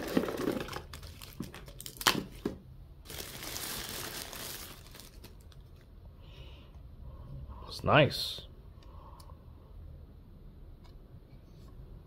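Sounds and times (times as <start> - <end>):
wrapping sheet crinkling: 3.0 - 5.8.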